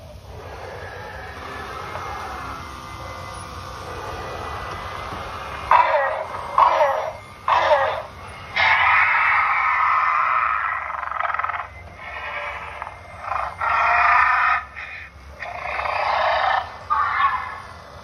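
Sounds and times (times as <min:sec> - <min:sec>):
recorded dinosaur roars from speaker: 0:00.1 - 0:17.8.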